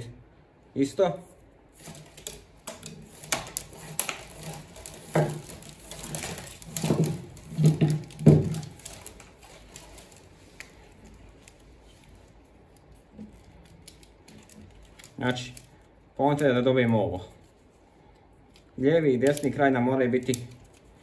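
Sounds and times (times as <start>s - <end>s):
trimmer line rustling and scraping: 1.7s - 15.3s.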